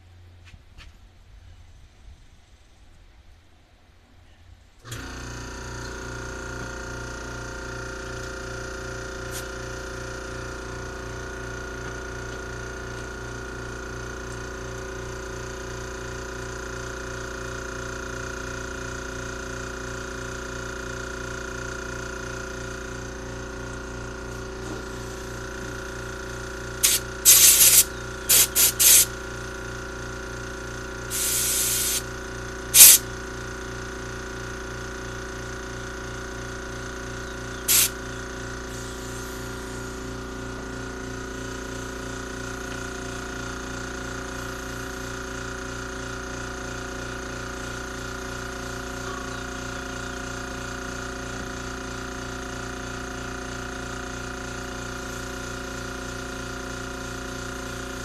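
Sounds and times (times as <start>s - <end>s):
pressurised spray hissing: 9.3s - 9.6s, 26.8s - 29.1s, 31.1s - 32.1s, 32.7s - 33.0s, 37.7s - 38.0s, 38.7s - 40.0s
steady low hum: 20.7s - 50.9s.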